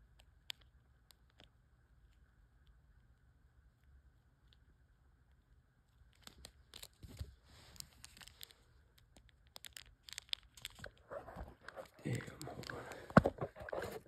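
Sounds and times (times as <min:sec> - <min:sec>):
plastic bag crinkling: 0:06.2 - 0:08.6, 0:09.4 - 0:14.0.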